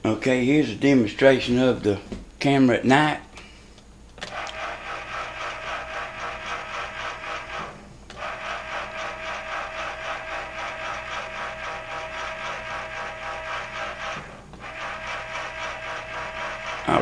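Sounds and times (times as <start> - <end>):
camera rotor pulsing buzz: 4.2 - 17.0.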